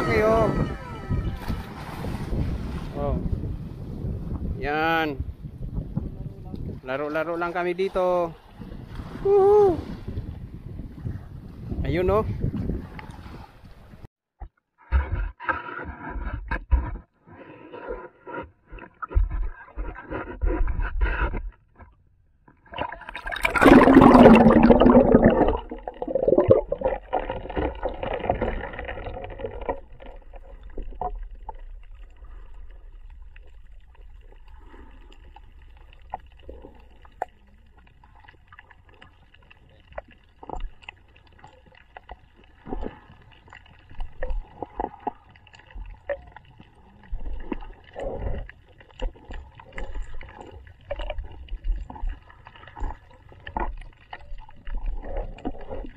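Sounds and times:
muffled underwater rumble: 0.0s - 4.6s, 22.6s - 55.9s
underwater knocks and pops: 14.4s - 17.1s, 18.7s - 31.9s, 47.1s - 55.9s
water splashing rush: 22.7s - 32.7s.

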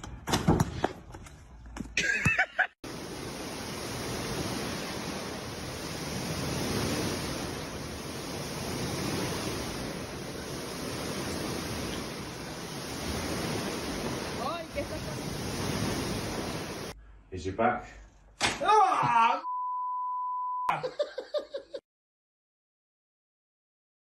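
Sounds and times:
pool water sloshing: 2.8s - 17.0s.

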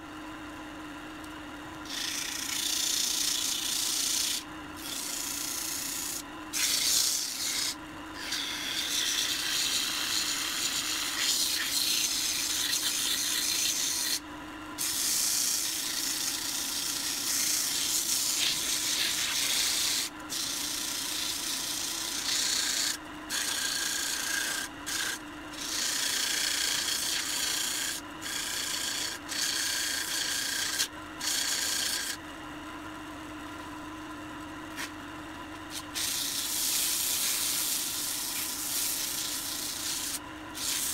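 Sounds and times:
wood lathe humming: 1.8s - 14.2s, 14.8s - 32.2s, 35.7s - 40.9s
sandpaper rasping on spinning wood: 1.9s - 14.2s, 14.8s - 32.2s, 35.7s - 40.9s.

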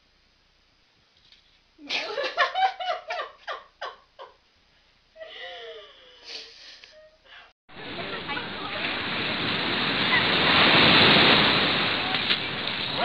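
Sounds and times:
person laughing: 1.8s - 4.4s.

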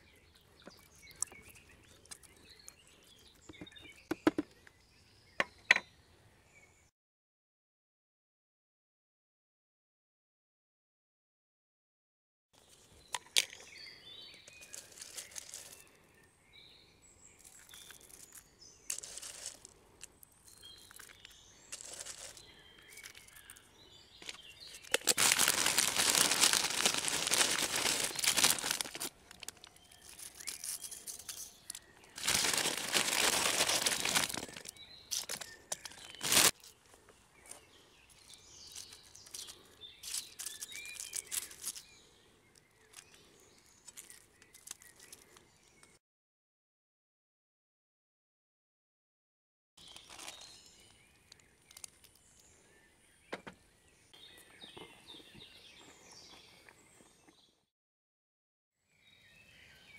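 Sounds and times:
birds chirping faintly: 0.0s - 6.9s, 12.6s - 46.0s, 49.8s - 57.7s
plastic snack bags rustling: 14.5s - 15.9s, 17.5s - 19.8s, 20.8s - 23.6s, 24.2s - 36.8s, 38.2s - 41.8s.

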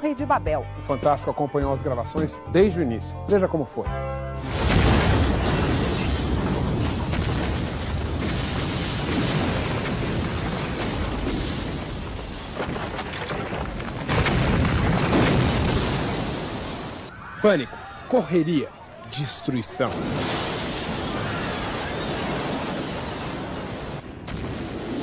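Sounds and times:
explosions blasting debris: 4.4s - 17.1s, 19.8s - 25.0s.

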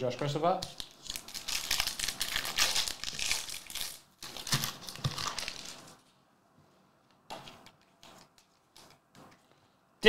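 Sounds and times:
foil wrapper crinkling: 0.7s - 6.0s.

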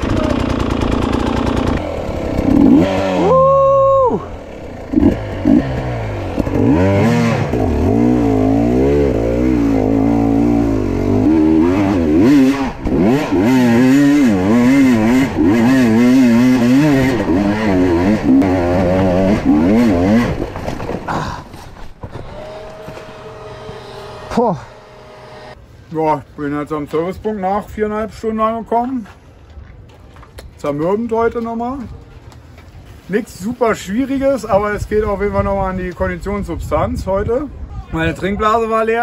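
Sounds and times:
motorbike engine revving: 0.0s - 20.7s, 22.2s - 25.6s.

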